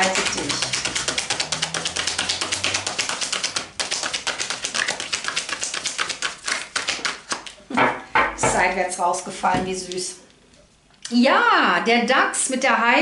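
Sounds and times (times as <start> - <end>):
cards being shuffled: 0.0 - 7.6.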